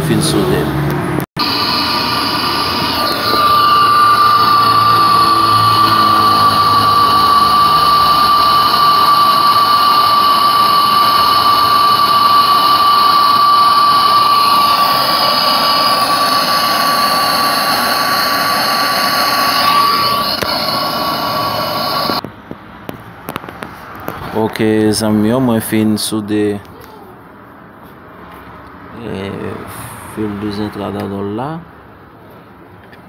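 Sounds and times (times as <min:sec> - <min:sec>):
high whine: 0:01.4 - 0:22.2
torch flame hissing: 0:01.4 - 0:22.2.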